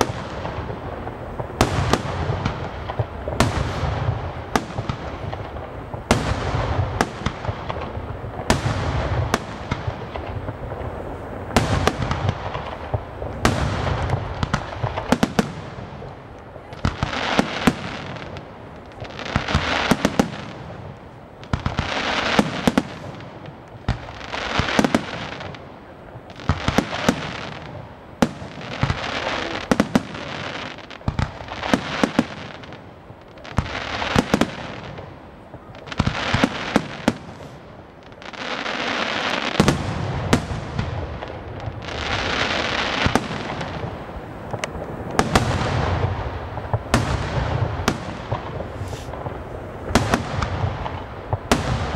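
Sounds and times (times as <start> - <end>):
firework crackling: 0.0 - 51.9
firework shells bursting: 38.4 - 51.9.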